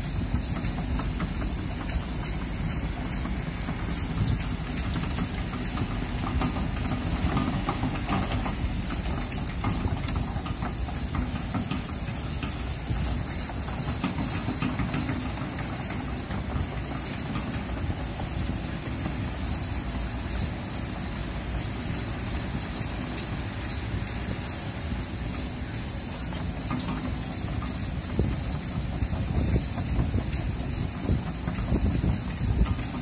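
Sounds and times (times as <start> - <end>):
excavator diesel engine running: 0.0 - 33.0
wind buffeting microphone: 25.0 - 33.0.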